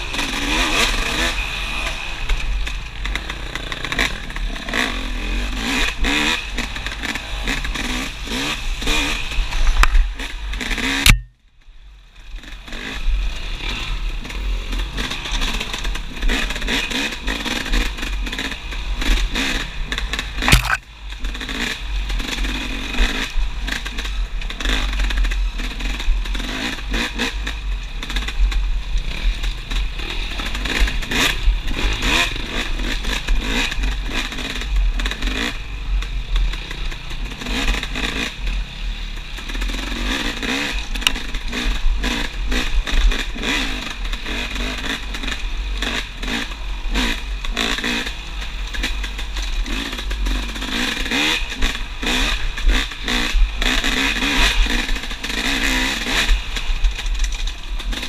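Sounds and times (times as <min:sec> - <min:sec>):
motorcycle engine revving: 0:00.0 - 0:11.4, 0:12.4 - 0:58.0
sharp knock: 0:11.1 - 0:11.3, 0:20.5 - 0:20.8.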